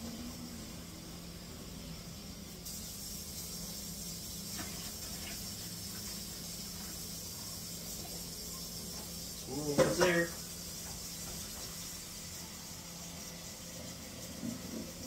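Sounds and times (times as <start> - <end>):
water pouring into a bucket: 2.7 - 11.7.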